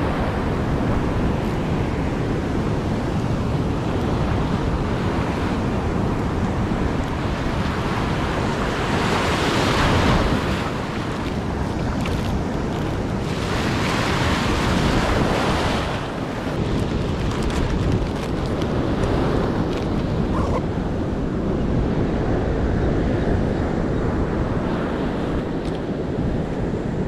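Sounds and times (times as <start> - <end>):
ocean surf breaking: 0.0 - 21.5
wind rumbling on microphone: 0.0 - 27.0.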